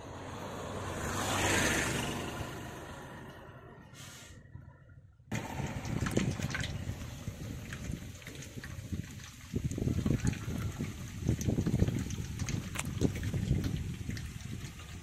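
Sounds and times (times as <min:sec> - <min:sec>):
oil trickling into metal basin: 0:05.3 - 0:15.0.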